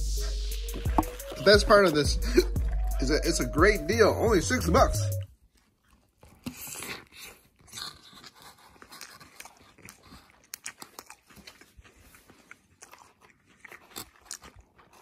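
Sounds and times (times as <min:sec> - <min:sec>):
person chewing crunchy food: 0:00.0 - 0:03.6, 0:04.2 - 0:15.0.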